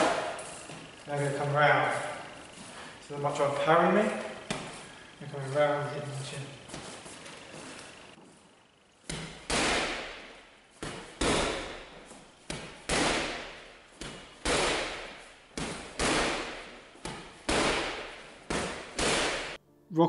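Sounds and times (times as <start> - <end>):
punches thudding on heavy bag: 0.0 - 0.5, 9.1 - 19.6.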